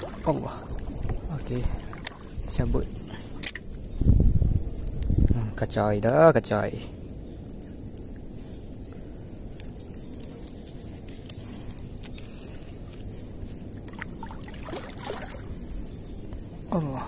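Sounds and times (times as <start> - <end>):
water sloshing: 0.0 - 3.6, 13.7 - 16.0
fishing tackle clicks: 3.4 - 3.7, 9.5 - 12.3.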